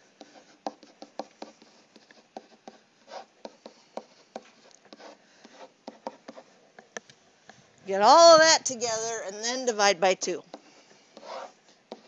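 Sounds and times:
stylus tapping on tablet: 0:00.6 - 0:01.6.

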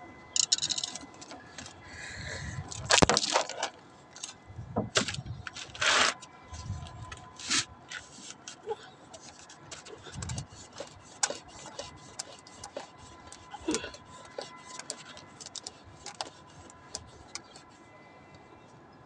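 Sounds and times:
plastic pipe screwed into fitting: 0:09.2 - 0:17.6.

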